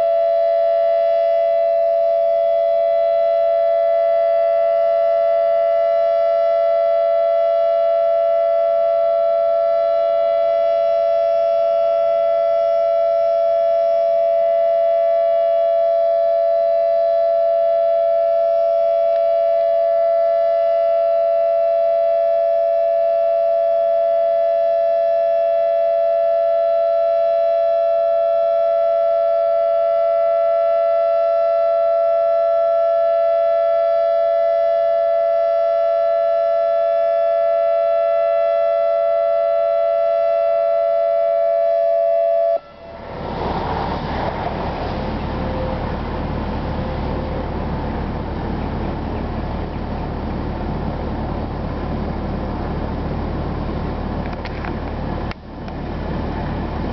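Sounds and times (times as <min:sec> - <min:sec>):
electronic warning siren steady tone: 0:00.0 - 0:56.9
broad rushing noise: 0:42.0 - 0:56.9.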